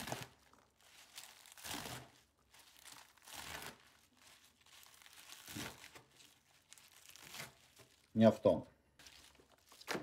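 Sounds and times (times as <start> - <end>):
knife slicing leafy greens: 1.1 - 2.2.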